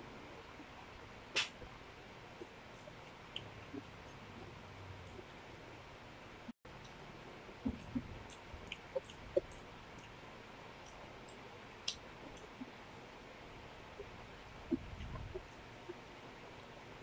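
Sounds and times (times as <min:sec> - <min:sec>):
low room noise: 0:00.0 - 0:17.0
soft mouth clicks: 0:07.6 - 0:10.2.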